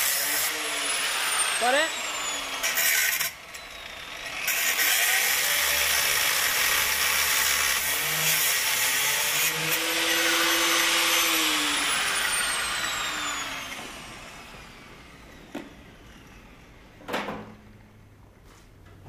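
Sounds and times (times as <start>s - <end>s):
angle grinder cutting steel: 0.0s - 16.6s
grinder disc whine winding down: 9.7s - 16.8s.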